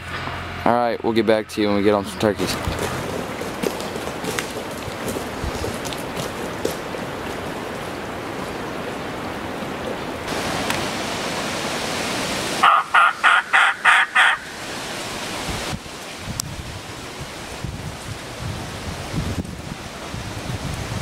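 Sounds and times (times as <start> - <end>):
turkey call yelps: 12.6 - 14.7.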